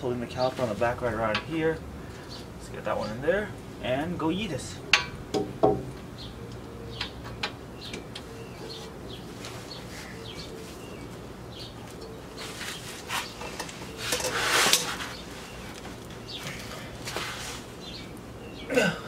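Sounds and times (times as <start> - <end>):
noisy rustle: 8.6 - 18.3.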